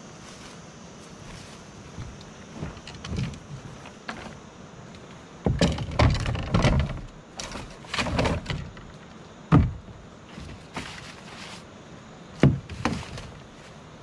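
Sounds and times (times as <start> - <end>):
rustling: 0.1 - 11.8, 12.4 - 14.0
dull thumps and knocks: 1.9 - 4.4, 5.4 - 11.5, 12.4 - 13.5.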